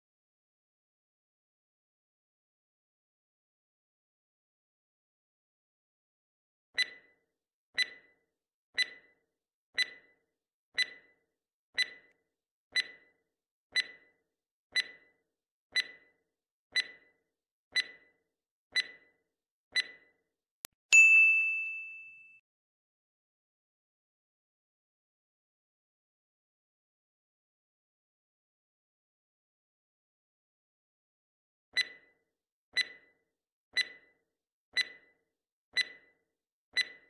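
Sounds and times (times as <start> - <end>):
countdown timer ticking: 6.8 - 7.2, 7.8 - 8.2, 8.8 - 9.2, 9.8 - 10.2, 10.8 - 11.2, 11.8 - 13.2, 13.8 - 14.2, 14.8 - 15.2, 15.8 - 17.2, 17.8 - 18.2, 18.8 - 19.2, 19.8 - 20.2, 31.8 - 32.1, 32.8 - 33.2, 33.8 - 34.2, 34.8 - 35.2, 35.8 - 36.2, 36.8 - 37.0
bright ding: 21.0 - 22.4.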